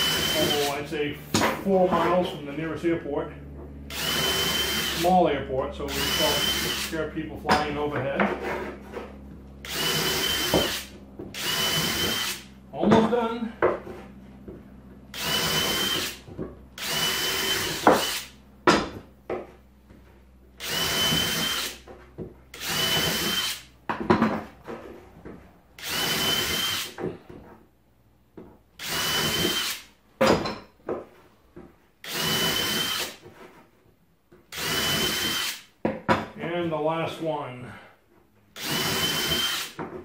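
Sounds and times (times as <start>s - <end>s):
cordless drill whining: 0.0s - 0.8s, 3.9s - 5.1s, 5.9s - 7.0s, 9.6s - 12.4s, 15.1s - 16.2s, 16.8s - 18.3s, 20.6s - 21.8s, 22.5s - 23.7s, 25.8s - 27.0s, 28.8s - 29.9s, 32.0s - 33.2s, 34.5s - 35.6s, 38.6s - 39.8s.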